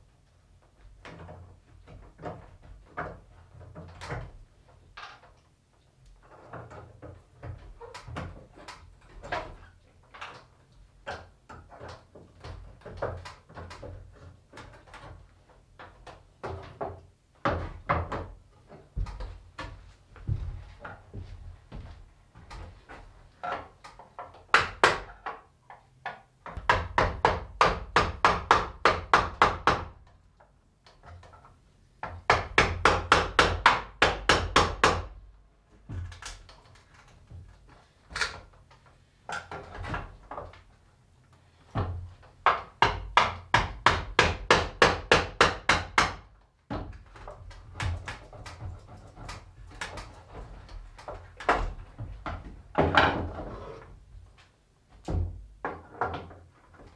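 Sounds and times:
hammer striking wood: 24.5s - 25.1s, 26.5s - 30.0s, 32.0s - 35.2s, 41.8s - 46.8s.

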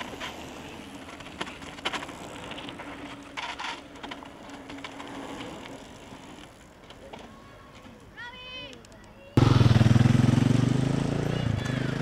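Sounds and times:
bike tyre noise: 0.0s - 8.7s.

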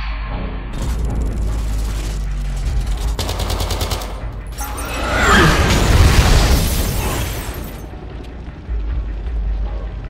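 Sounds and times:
automatic gunfire: 3.0s - 4.4s.

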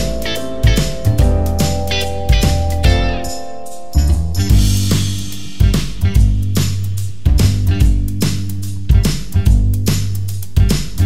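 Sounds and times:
drum beat: 0.0s - 3.4s, 4.0s - 11.0s
bass line: 0.0s - 11.0s.

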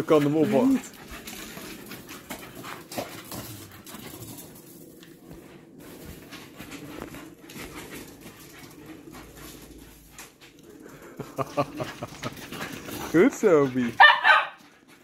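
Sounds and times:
dog sounds: 0.0s - 1.8s
dogs scuffling on paving: 0.0s - 15.0s.

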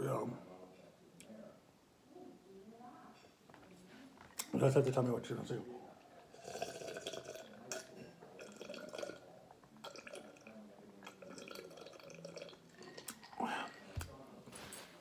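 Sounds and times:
person gulping: 6.2s - 14.1s.

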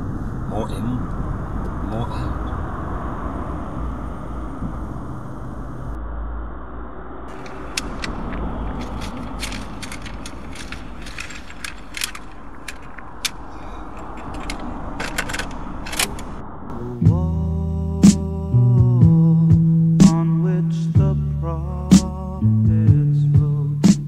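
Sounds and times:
plastic clicks and rattles: 7.3s - 16.3s.

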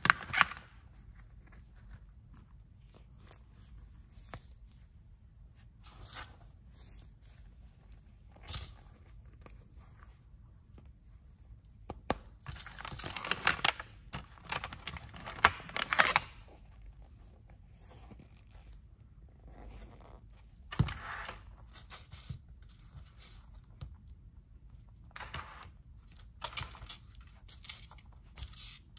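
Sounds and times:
plastic packaging crinkling: 12.4s - 16.5s.

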